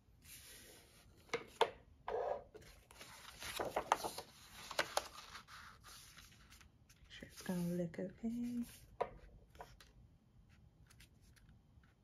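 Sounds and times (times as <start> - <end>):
paper rustling: 2.6 - 10.0.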